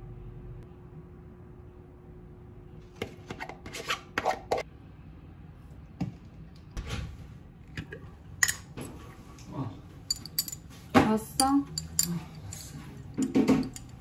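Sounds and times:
objects knocking and tapping: 10.1s - 14.0s.

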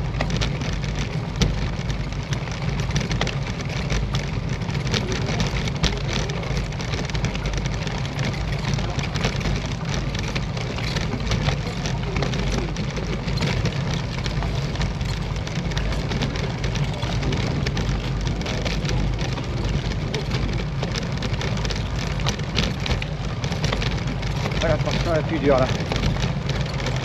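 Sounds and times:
bicycle tyre noise: 0.0s - 27.0s
crackling rattle: 0.0s - 27.0s.

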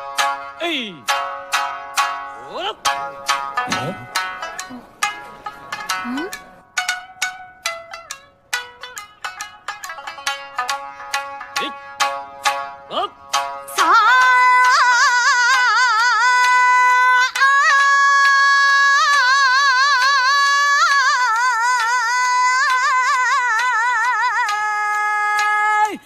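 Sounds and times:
woman singing wordless vibrato: 12.9s - 26.0s.

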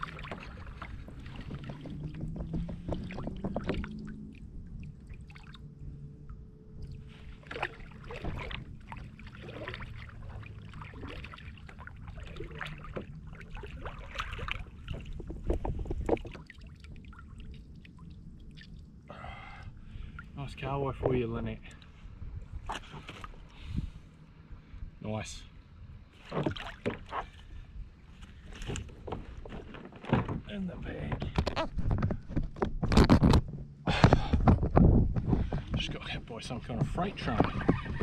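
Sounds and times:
water splashing: 0.0s - 19.1s, 26.2s - 27.4s
wind and water rumble: 0.0s - 38.0s
knocks against kayak hull: 0.3s - 3.8s.

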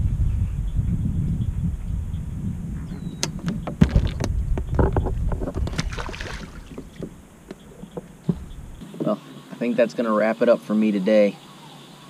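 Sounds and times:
wind buffeting the microphone: 0.0s - 8.8s
handling clicks and knocks: 3.2s - 8.6s
water splash: 5.4s - 7.1s.

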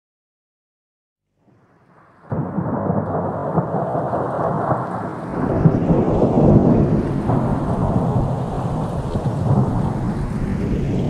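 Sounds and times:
wind buffeting microphone: 2.4s - 11.0s.

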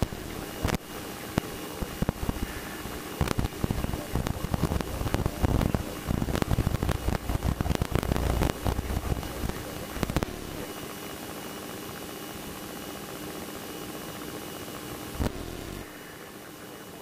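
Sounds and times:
crackling pops: 0.0s - 11.0s, 15.1s - 16.0s
aircraft engine and propeller rumble: 0.0s - 17.0s.

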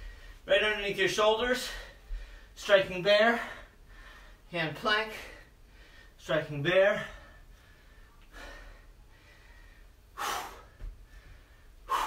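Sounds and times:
man breathing hard: 1.6s - 2.6s, 3.3s - 4.5s, 5.2s - 6.2s, 7.0s - 12.0s.

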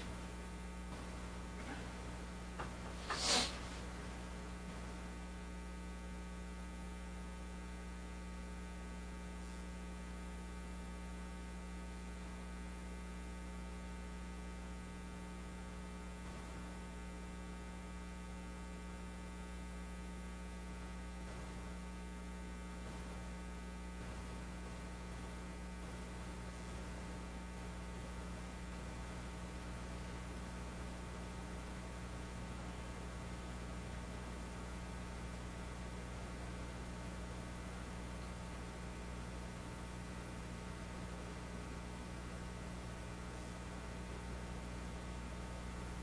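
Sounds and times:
electrical mains hum: 0.0s - 46.0s
faint hiss: 2.8s - 3.9s.

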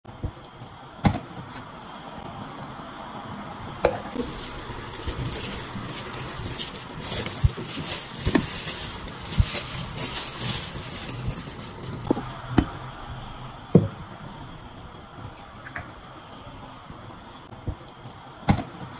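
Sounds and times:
plastic wrap crinkling: 4.0s - 12.1s.

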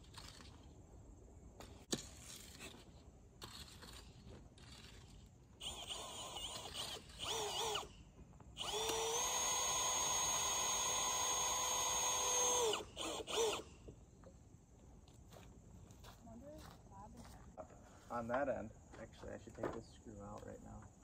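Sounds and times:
power drill whining: 4.6s - 13.9s.

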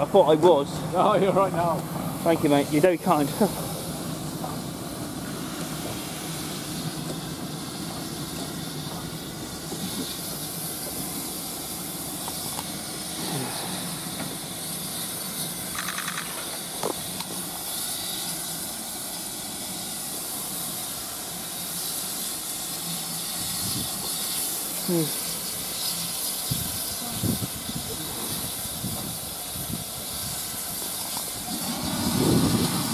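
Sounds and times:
steam locomotive hissing: 0.0s - 32.9s
rapid ticks: 15.7s - 17.3s.

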